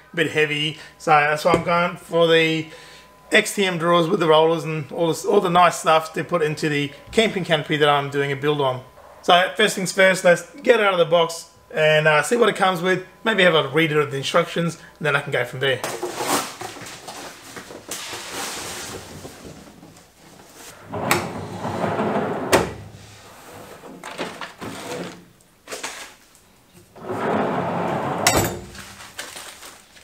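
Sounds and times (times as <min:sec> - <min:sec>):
drawer sliding on roller runners: 0:20.5 - 0:25.2, 0:26.9 - 0:28.8
cardboard packaging handled: 0:28.7 - 0:30.0.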